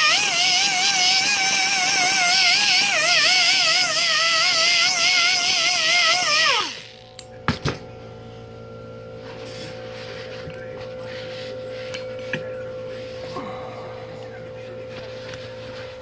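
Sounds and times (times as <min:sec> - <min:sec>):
die grinder whining: 0:00.0 - 0:07.2
faint steady hum: 0:00.0 - 0:16.0.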